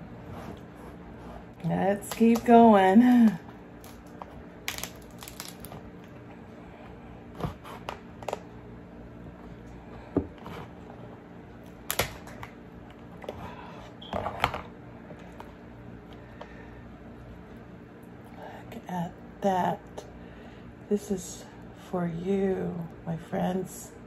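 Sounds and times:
crab shell cracking: 3.8s - 6.1s.

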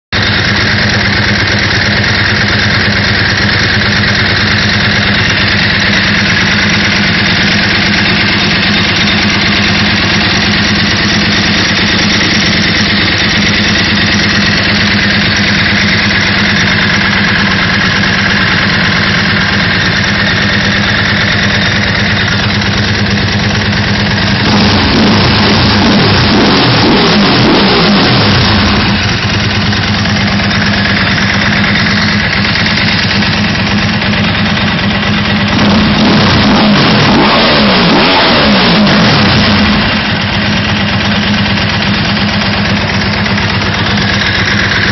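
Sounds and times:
motorcycle engine running: 0.0s - 44.9s.

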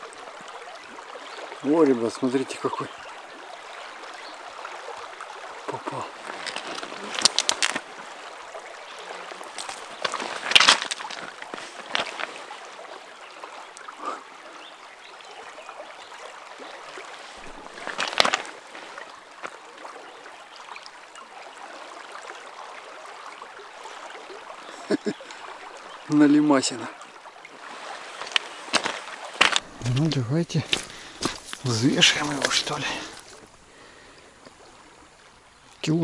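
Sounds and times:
river water rushing: 0.0s - 36.0s
sharp knocks or splashes: 5.6s - 7.9s, 9.3s - 12.5s, 17.4s - 19.6s, 27.7s - 32.8s.

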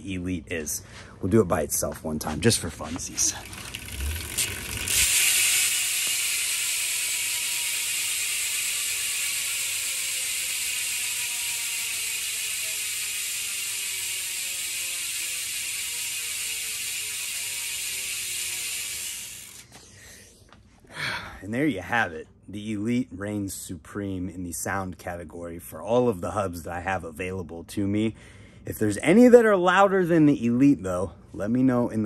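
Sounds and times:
bicycle hub freewheeling buzz: 3.2s - 19.9s.

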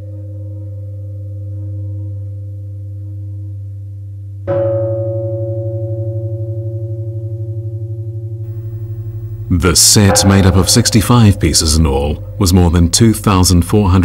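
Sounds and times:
bronze bells ringing: 8.5s - 13.1s.

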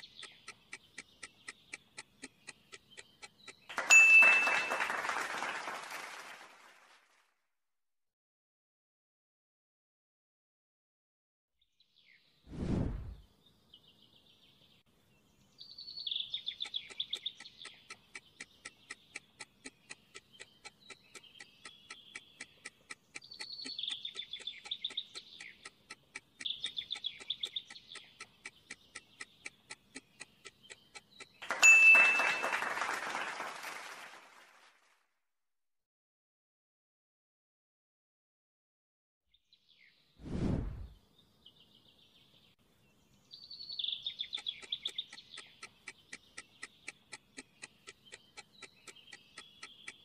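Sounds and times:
clock ticking: 0.0s - 3.8s, 16.2s - 31.5s, 44.0s - 50.0s
birdsong trills: 0.0s - 5.8s, 13.2s - 33.2s, 40.8s - 50.0s.

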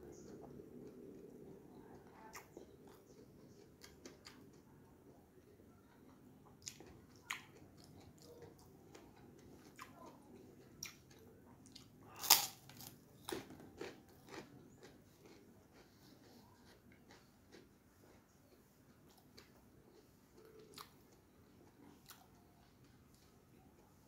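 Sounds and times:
chewing and mouth clicks: 0.0s - 4.8s, 5.9s - 24.0s
crispy cracker crunching: 12.1s - 15.9s.

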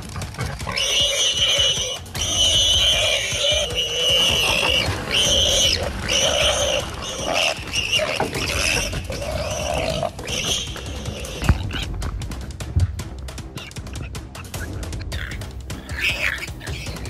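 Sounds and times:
animal squealing cries: 0.2s - 11.9s, 13.6s - 17.0s.

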